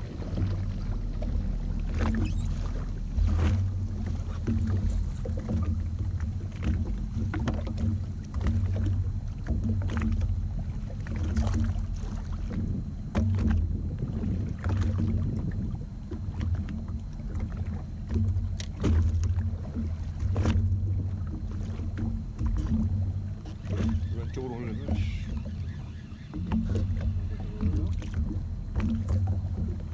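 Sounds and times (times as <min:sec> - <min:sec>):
knocks and water splashes: 0:00.0 - 0:29.9
watercraft engine idling: 0:00.0 - 0:29.9.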